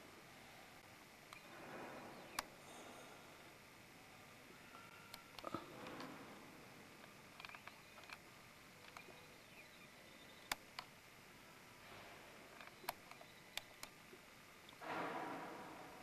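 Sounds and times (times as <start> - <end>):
faint room hiss: 0.0 - 16.0
sharp clicks: 2.3 - 2.5, 7.0 - 9.3, 10.2 - 10.9, 12.5 - 14.0.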